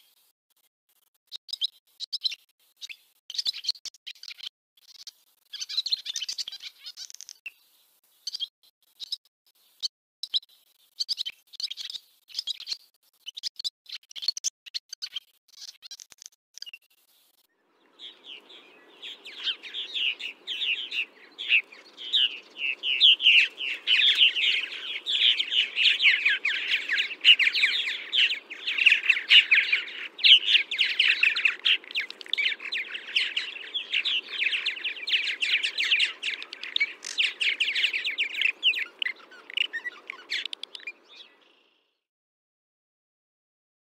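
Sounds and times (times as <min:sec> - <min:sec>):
swallows twittering: 0:03.3 - 0:07.2, 0:17.7 - 0:41.8
faint low background noise: 0:17.5 - 0:41.9.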